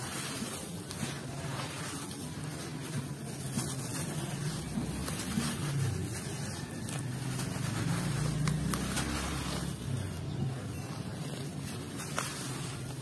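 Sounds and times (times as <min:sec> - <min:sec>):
hands squelching wet sand: 0:00.0 - 0:13.0.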